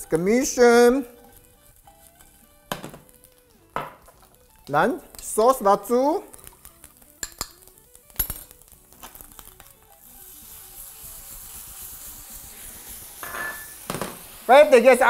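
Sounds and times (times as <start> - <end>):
sizzling in frying pan: 0.0 - 15.0
soft background music: 0.0 - 15.0
spoon clinking on bowl: 7.2 - 7.6, 13.2 - 13.7.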